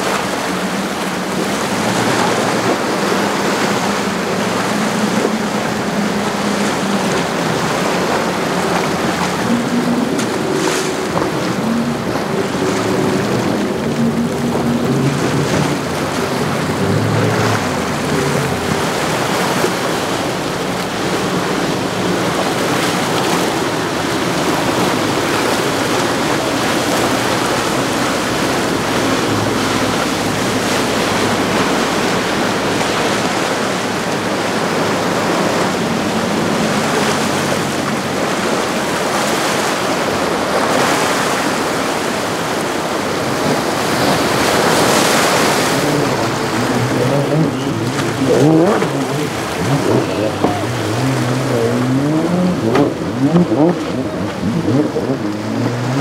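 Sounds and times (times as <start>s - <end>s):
boat engines humming: 0.0s - 56.0s
waves and surf washing: 0.0s - 56.0s.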